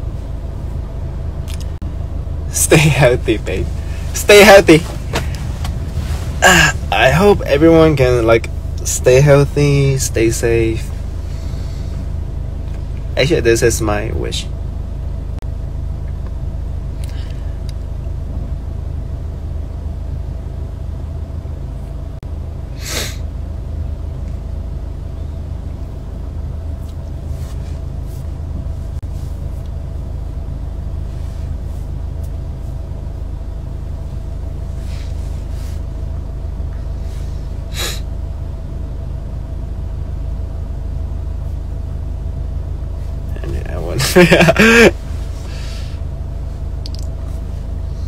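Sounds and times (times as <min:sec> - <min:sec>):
car cabin rumble: 0:00.0 - 0:48.0
faint steady hum: 0:00.0 - 0:48.0.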